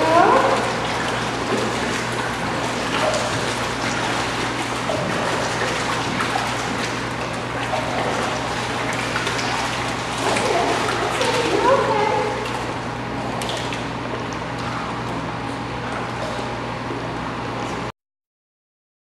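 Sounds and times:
water trickling and splashing: 0.0s - 15.1s
steady low hum: 0.0s - 17.9s.

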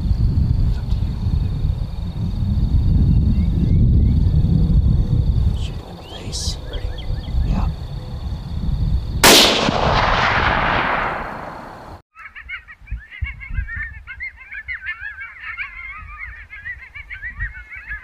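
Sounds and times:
chorus of animal calls: 5.6s - 8.0s, 12.2s - 18.0s
rifle shot: 9.2s - 12.0s.

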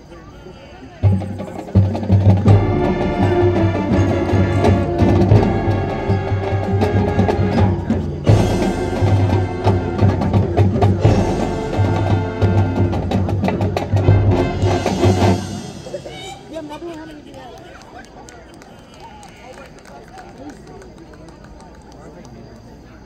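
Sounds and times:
drums and percussion: 0.8s - 18.6s
brass chords: 1.0s - 16.9s.

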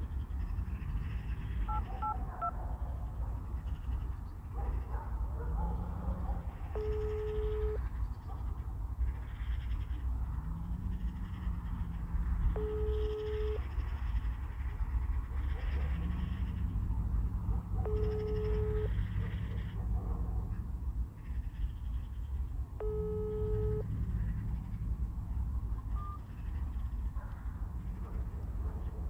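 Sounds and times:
phone keypad beeps: 1.7s - 2.5s, 6.8s - 7.8s, 12.6s - 13.6s, 17.8s - 18.9s, 22.8s - 23.8s, 25.8s - 26.2s
phone ringback tone: 1.7s - 2.5s, 6.8s - 7.8s, 12.6s - 13.6s, 17.8s - 19.0s, 22.8s - 23.9s.

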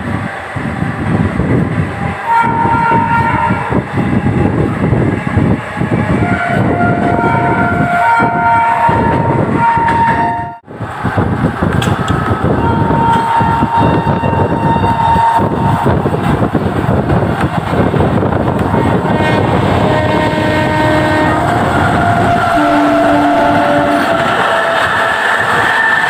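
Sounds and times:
train coach rumble and clatter: 0.0s - 26.0s
locomotive horn: 2.2s - 10.6s, 12.6s - 15.6s, 18.7s - 24.9s.

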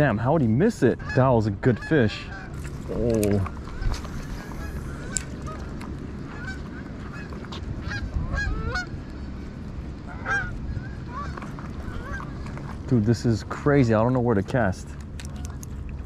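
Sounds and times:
steady low rumble: 0.0s - 16.0s
geese honking: 0.8s - 9.0s, 10.0s - 12.8s.

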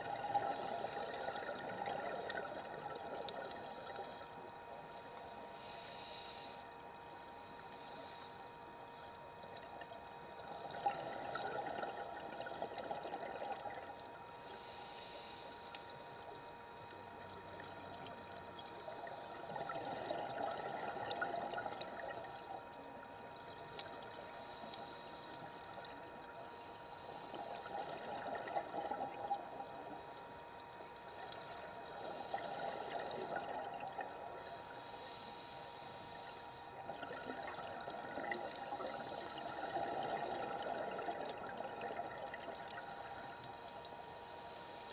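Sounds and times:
exhaled bubbles gurgling underwater: 0.0s - 4.7s, 9.3s - 14.5s, 16.4s - 34.8s, 36.1s - 44.0s
regulator inhalation hiss: 4.0s - 9.1s, 14.3s - 17.2s, 18.6s - 22.5s, 23.5s - 25.8s, 31.1s - 36.8s.

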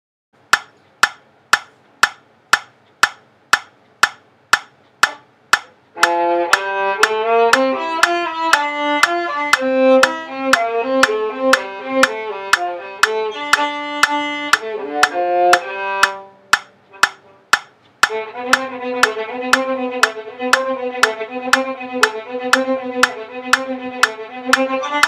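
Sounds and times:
metronome clicking: 0.4s - 25.0s
violin melody: 6.0s - 25.0s.

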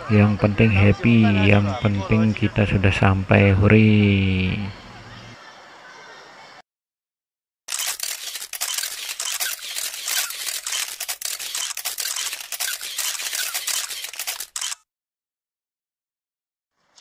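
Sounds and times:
camera shutter clicks: 7.7s - 14.8s.

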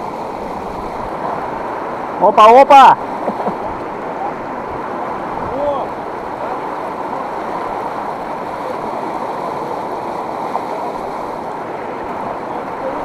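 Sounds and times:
river water rushing: 0.0s - 13.0s.

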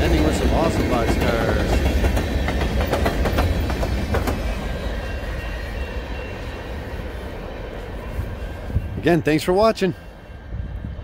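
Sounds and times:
wheels clicking over rail joints: 0.0s - 5.1s
freight train rumbling past: 0.0s - 11.0s.

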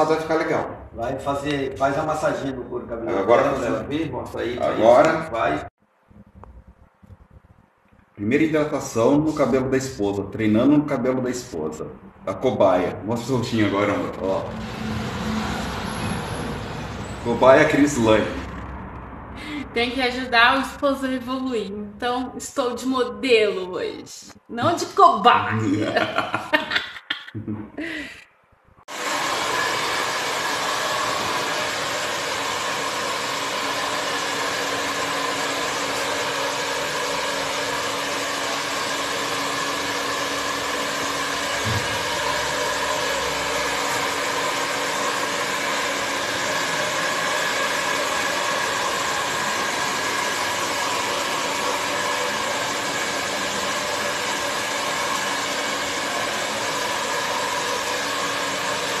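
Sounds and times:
hair dryer running: 13.4s - 18.6s, 25.6s - 26.8s, 28.9s - 59.0s.

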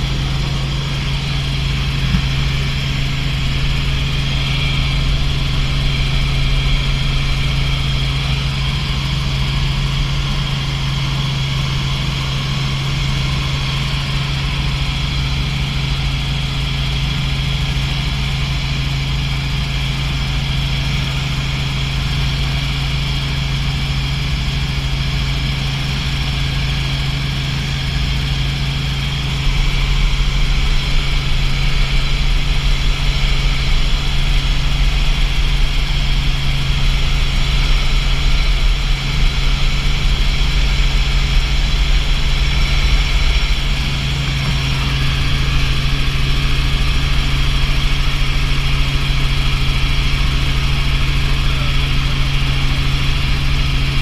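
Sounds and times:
deep rumble: 0.0s - 16.2s, 27.1s - 54.0s
helicopter engine and rotor drone: 0.0s - 54.0s.

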